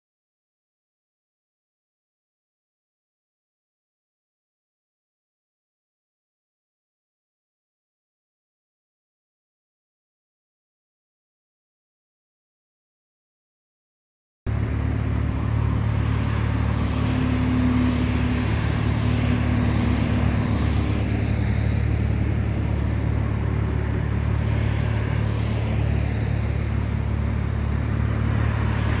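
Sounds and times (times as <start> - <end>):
highway traffic: 14.5 - 29.0
vehicle sweeping past: 14.5 - 29.0.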